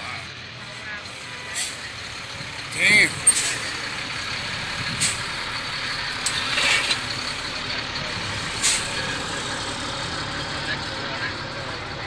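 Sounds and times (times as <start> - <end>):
heavy truck engine rumbling: 0.0 - 12.0
air brake hisses: 8.6 - 9.0.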